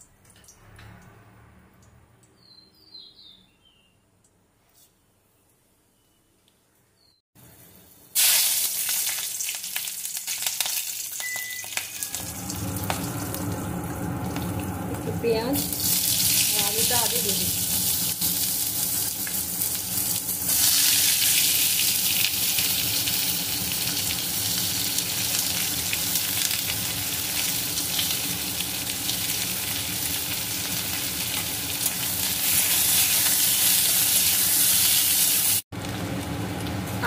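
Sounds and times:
vegetables sizzling in oil: 7.4 - 37.0.

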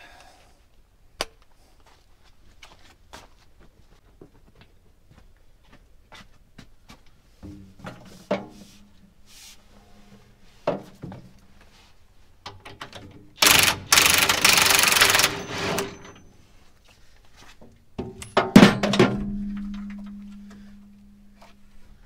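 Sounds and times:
impact wrench hammering: 13.4 - 16.2.

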